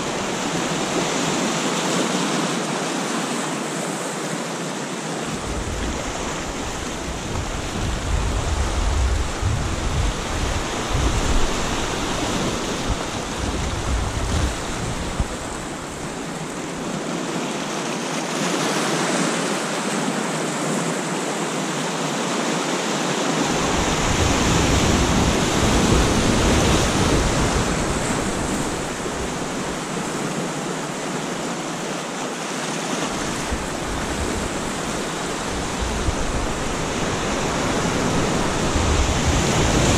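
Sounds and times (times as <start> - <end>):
surf washing over rocks: 0.0 - 39.9
wind rumbling on microphone: 5.3 - 16.8, 23.4 - 31.0, 33.1 - 39.9.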